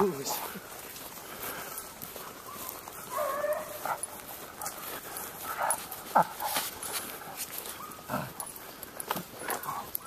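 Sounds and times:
dogs baying: 1.5 - 10.0
dogs barking: 2.2 - 10.0.

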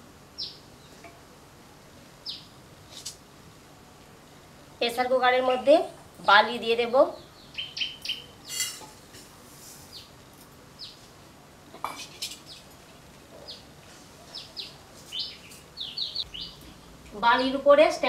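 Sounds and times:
small birds chirping: 0.3 - 1.0, 2.2 - 2.6, 6.2 - 8.8, 9.8 - 11.1, 12.2 - 17.5.

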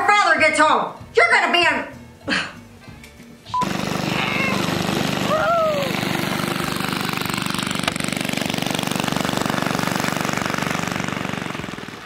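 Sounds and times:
small engine running with rapid pulsing: 3.6 - 12.0.

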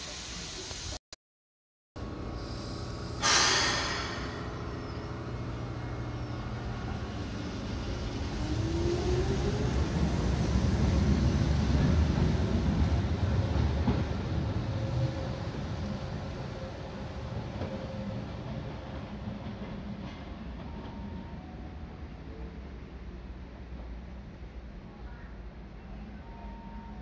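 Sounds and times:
air release hiss: 0.0 - 1.0, 2.4 - 4.5
train wheels rumbling on rail: 2.0 - 27.0.

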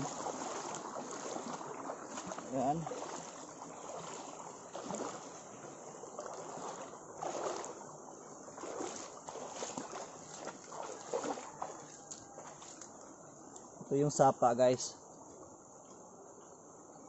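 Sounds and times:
footsteps on wet rock and gravel: 0.0 - 7.8, 8.6 - 12.9
creek water running over rock: 0.0 - 13.2.

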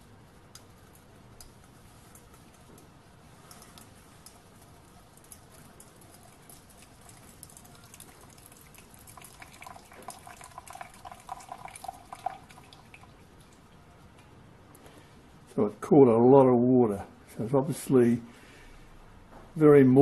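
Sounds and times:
water trickling into metal jug: 0.9 - 13.9.

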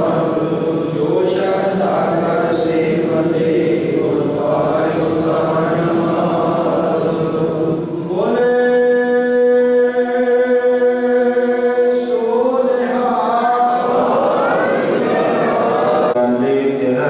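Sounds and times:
men chanting together: 0.0 - 8.4, 11.3 - 16.2.

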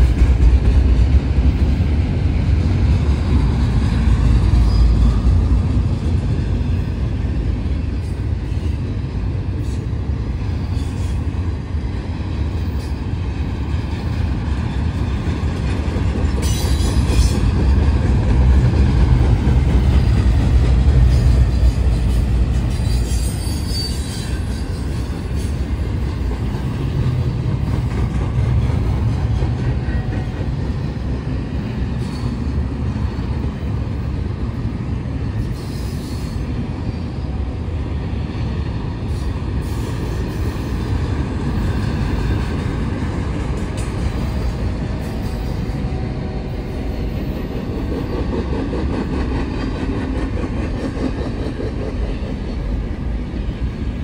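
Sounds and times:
train wheels rumbling on rail: 0.0 - 54.0
high-pitched wheel squeal: 22.7 - 24.6.

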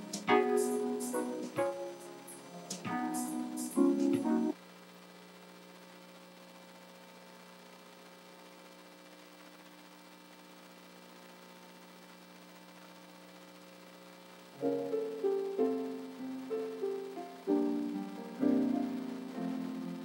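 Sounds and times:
keyboard music: 0.0 - 4.6, 14.6 - 20.0
steady electrical hum: 0.0 - 20.0.

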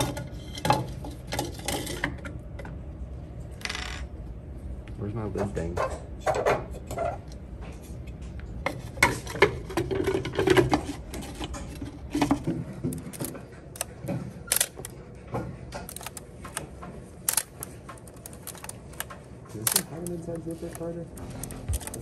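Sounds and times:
plastic tank parts clattering and clicking: 8.7 - 22.0.

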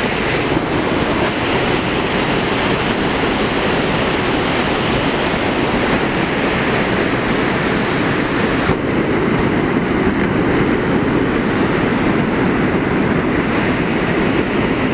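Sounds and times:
river rushing over rapids: 0.0 - 9.0
deep rumble of water: 0.0 - 14.9.

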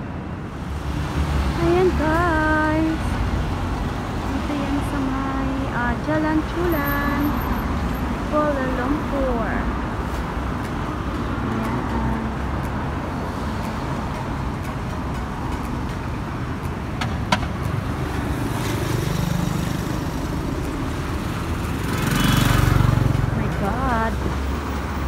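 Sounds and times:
cars passing: 0.0 - 25.0
loud vehicle passing: 17.5 - 25.0
motorcycle engine passing close: 21.7 - 23.4.

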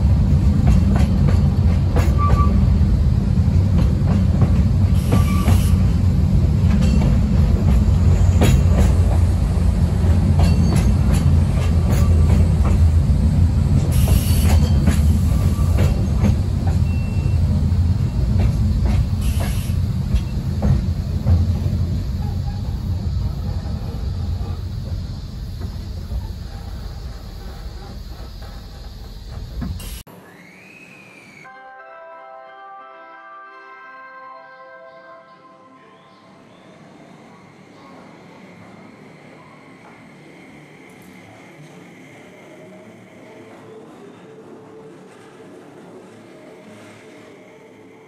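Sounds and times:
train wheel-on-rail rumble: 0.0 - 31.4, 36.2 - 48.0
high wheel squeals: 5.0 - 6.0, 13.9 - 18.2.

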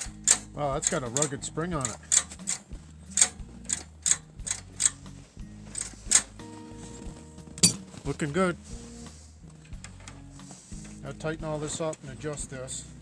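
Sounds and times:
throttle linkage snapping back: 0.0 - 5.1, 5.8 - 6.4
faint background music: 0.0 - 13.0.

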